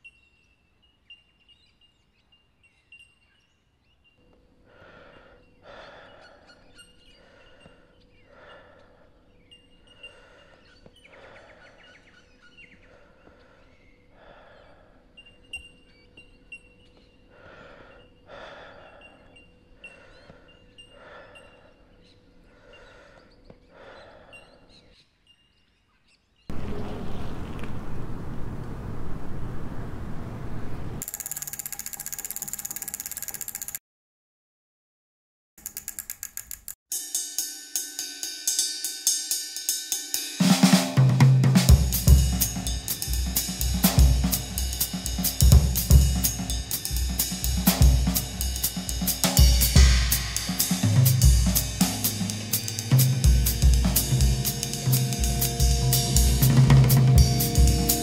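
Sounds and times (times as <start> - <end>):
birds chirping: 0.0 - 31.0
cyclist breathing hard: 4.6 - 15.2, 17.0 - 25.0.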